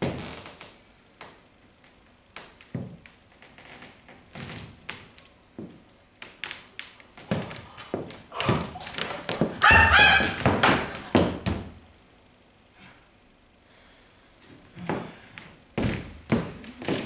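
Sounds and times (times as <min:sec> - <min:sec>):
person making ape-like hoots: 0:09.6 - 0:11.1.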